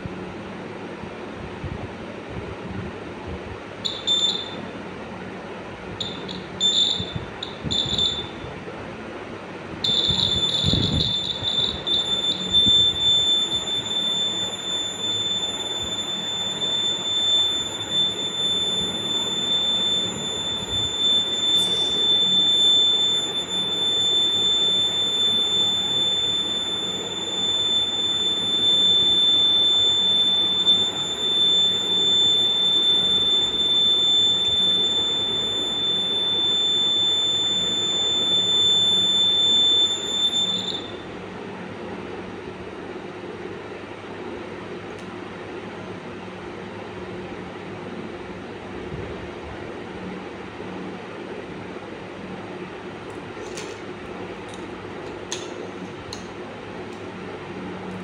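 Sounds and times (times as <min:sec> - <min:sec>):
electronic buzzer beep: 0:03.9 - 0:04.6, 0:06.0 - 0:08.5, 0:09.9 - 0:41.0.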